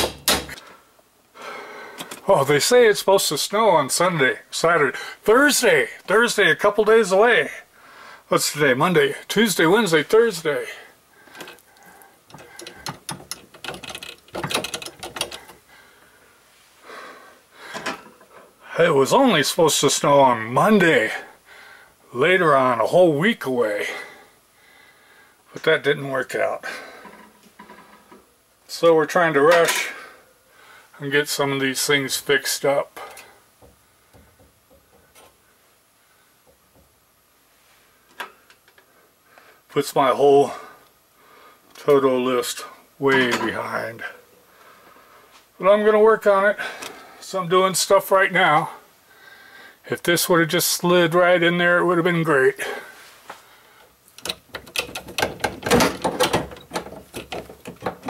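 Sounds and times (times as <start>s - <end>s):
hands handling pipe fittings: 2.0s - 2.3s, 11.3s - 15.7s, 17.7s - 18.5s, 54.1s - 58.0s
metallic clicks and scraping: 12.3s - 15.6s, 54.1s - 58.0s.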